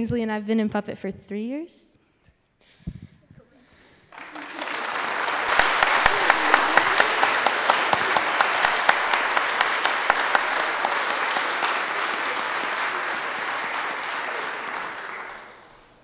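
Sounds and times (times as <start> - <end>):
audience applauding: 4.1 - 16.0
loud nearby hand clapping: 4.1 - 16.0.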